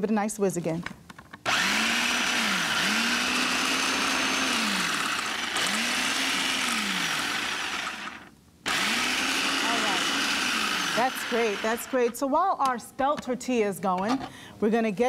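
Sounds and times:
food processor motor whirring: 0:01.5 - 0:12.1.

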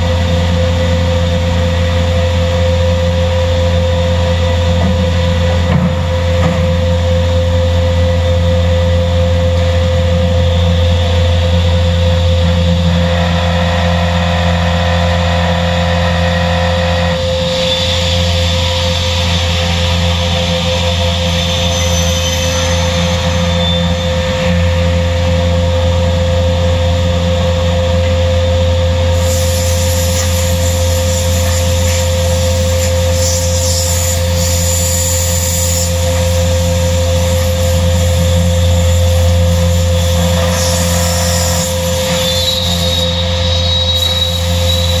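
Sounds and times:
panel saw humming: 0:11.0 - 0:26.8
saw blade cutting hiss: 0:17.2 - 0:24.1, 0:29.1 - 0:45.0.

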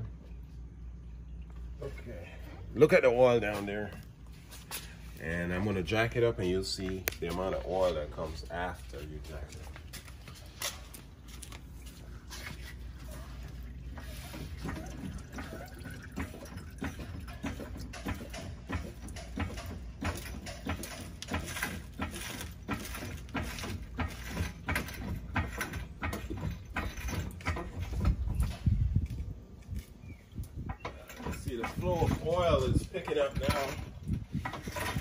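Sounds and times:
oil pouring into drain pan: 0:14.0 - 0:19.2.

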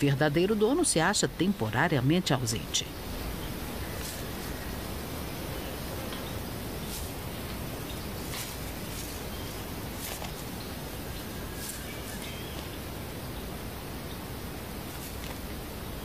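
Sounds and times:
outdoor background hiss: 0:00.0 - 0:16.0
bird tugging dry grass: 0:03.1 - 0:12.9, 0:14.8 - 0:15.7.

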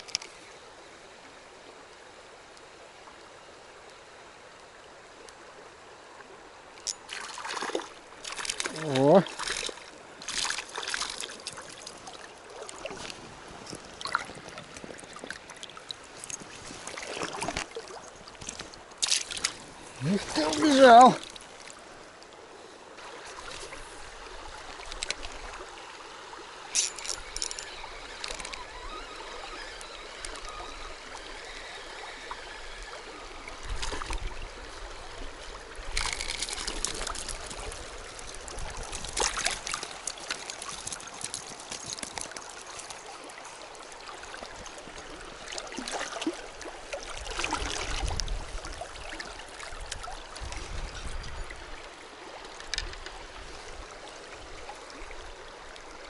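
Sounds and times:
river rippling over stones: 0:00.0 - 0:56.0
short clicks and splashes: 0:06.8 - 0:15.4, 0:17.0 - 0:19.6, 0:26.7 - 0:31.7, 0:35.9 - 0:43.1.

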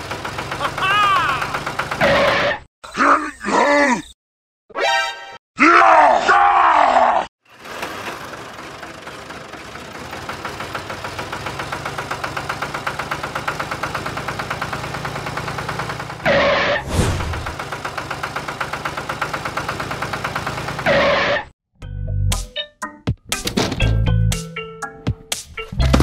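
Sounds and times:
diesel tractor engine chugging: 0:00.0 - 0:02.5, 0:07.4 - 0:21.4.

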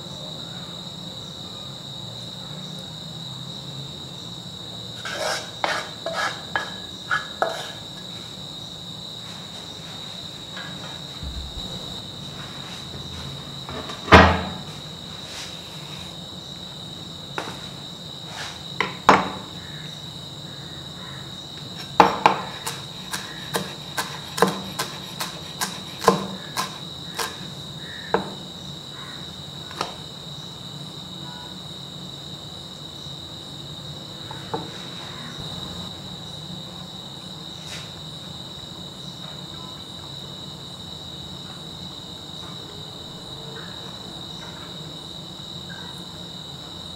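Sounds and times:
knife chopping on wooden board: 0:22.0 - 0:27.4.

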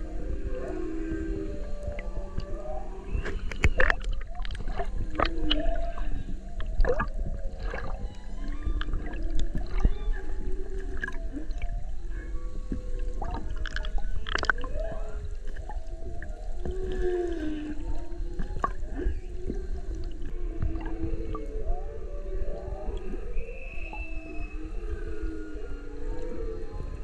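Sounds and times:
humpback whale song: 0:00.0 - 0:27.0
water sloshing against camera: 0:00.4 - 0:21.6
underwater rush of water: 0:00.4 - 0:21.7.

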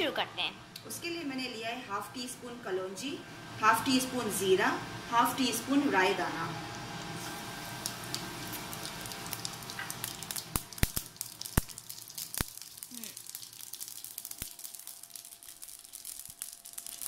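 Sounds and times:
seeds sizzling in hot oil: 0:05.3 - 0:17.0.

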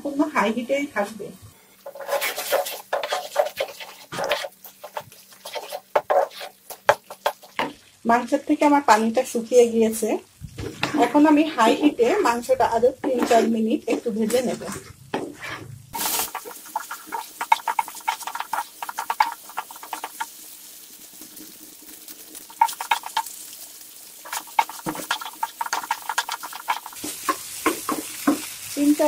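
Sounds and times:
wooden spatula scraping and tapping: 0:01.8 - 0:07.8, 0:10.5 - 0:20.3, 0:22.5 - 0:23.3, 0:24.3 - 0:28.5
meat sizzling in a pan: 0:01.8 - 0:14.4, 0:15.1 - 0:29.0.

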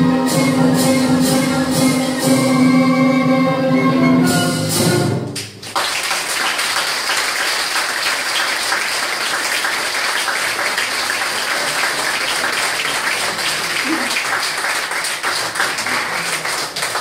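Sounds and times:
audience applause: 0:05.6 - 0:17.0.

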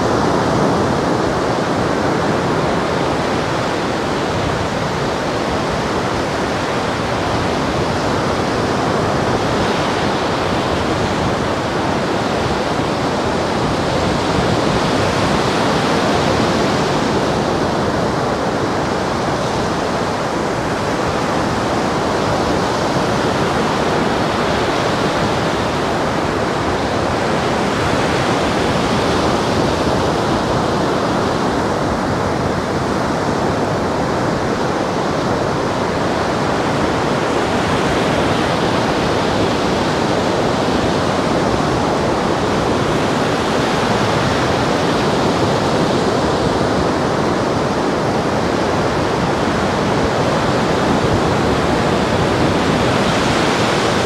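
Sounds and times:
surf breaking on a beach: 0:00.0 - 0:54.0.

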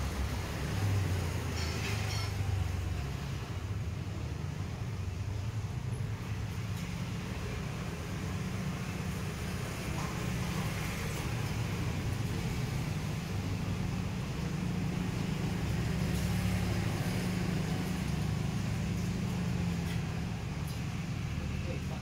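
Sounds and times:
low engine rumble: 0:00.0 - 0:22.0.

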